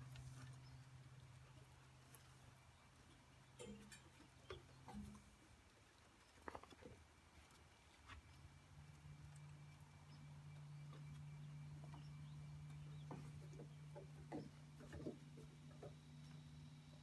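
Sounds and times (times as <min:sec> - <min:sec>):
steady low hum: 0:07.7 - 0:17.0.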